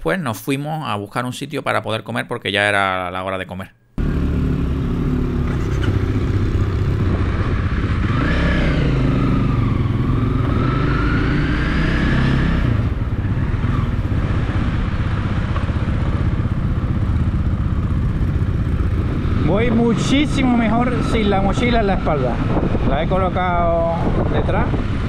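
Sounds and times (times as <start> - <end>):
motorcycle engine pulling away: 4.0 - 22.8.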